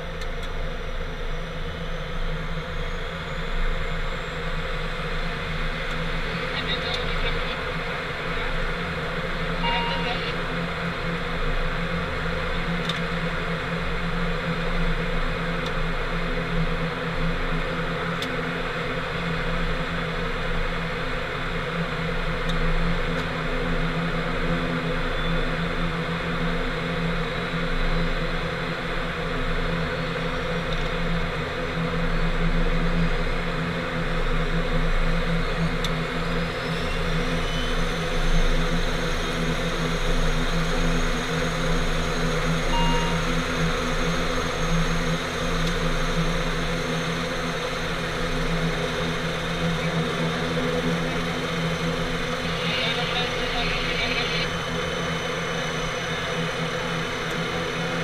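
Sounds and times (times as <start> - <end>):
turboprop engine idling: 0.0 - 58.0
faint high whine: 0.1 - 15.6, 34.7 - 58.0.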